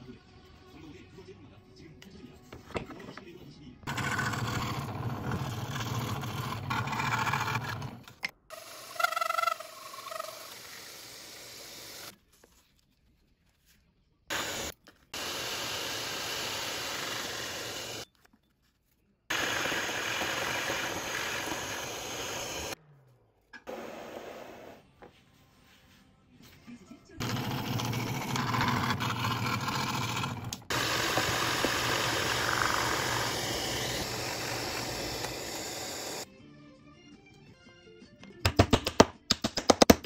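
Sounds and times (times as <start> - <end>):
hole saw boring into board: 3.9 - 8.0, 14.3 - 18.0, 19.3 - 22.8, 27.2 - 36.2
scroll saw cutting wood: 3.9 - 12.1, 14.3 - 18.0, 19.3 - 22.8, 27.2 - 36.3.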